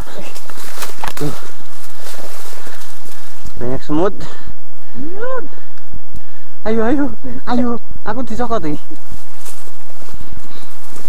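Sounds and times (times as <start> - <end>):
footsteps through undergrowth: 0.0 - 3.7, 8.8 - 11.0.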